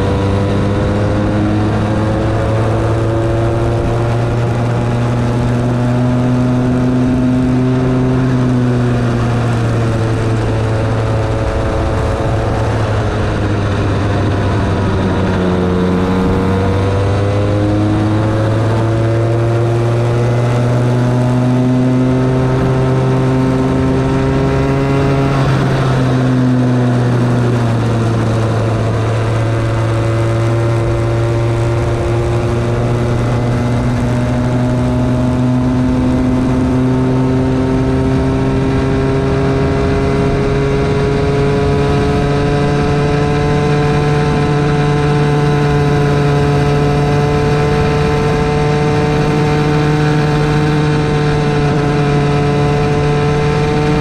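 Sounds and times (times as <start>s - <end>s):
go-kart engine revving: 0.0s - 54.0s
rushing wind: 0.0s - 54.0s.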